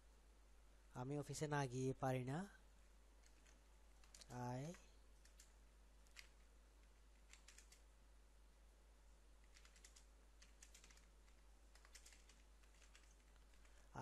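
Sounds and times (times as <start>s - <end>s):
typing on computer keyboard: 3.2s - 6.4s, 7.1s - 7.9s, 9.4s - 13.8s.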